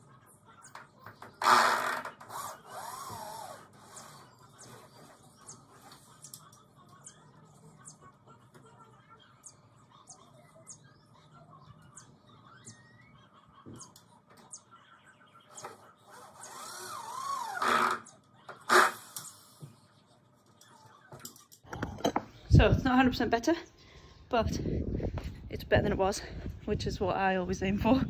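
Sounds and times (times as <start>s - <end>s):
small birds chirping: 2.1s - 18.6s.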